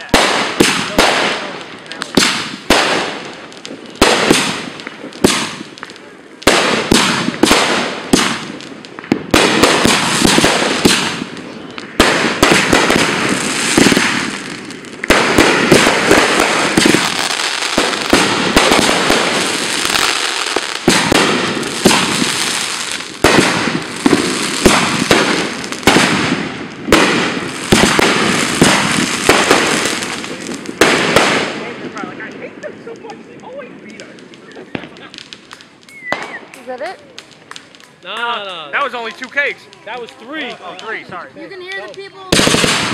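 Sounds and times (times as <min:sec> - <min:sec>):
crackling sparks from fireworks: 0:00.0 - 0:42.9.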